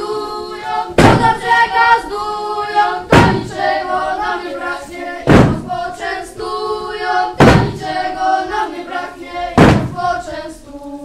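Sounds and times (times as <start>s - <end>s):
children singing in unison: 0.0s - 11.0s
thumps on wooden stage floor: 1.0s - 1.4s, 3.1s - 3.6s, 5.2s - 5.8s, 7.4s - 8.0s, 9.6s - 10.2s.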